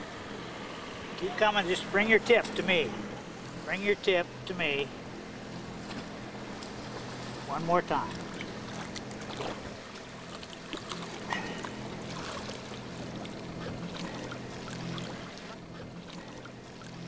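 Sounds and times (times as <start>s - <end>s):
boat motor humming: 0.0s - 17.0s
water splashing and sloshing: 5.0s - 17.0s.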